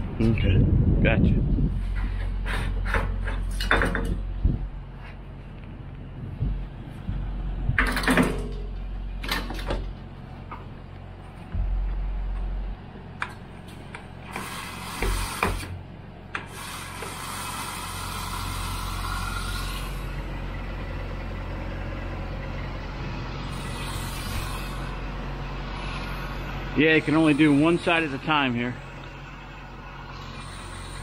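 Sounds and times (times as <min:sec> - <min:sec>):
diesel engine idling: 0:00.0 - 0:31.0
steady rushing noise: 0:11.3 - 0:14.3.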